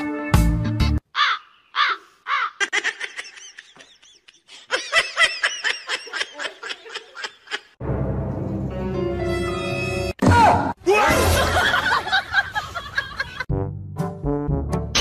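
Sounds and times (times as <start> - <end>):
music: 0.0 - 1.0, 7.8 - 10.2, 13.5 - 15.0
high-pitched giggling: 2.3 - 7.8.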